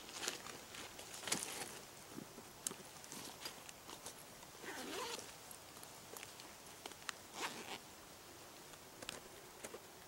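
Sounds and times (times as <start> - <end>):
backpack zipper pulled: 4.6 - 5.2, 7.3 - 7.8.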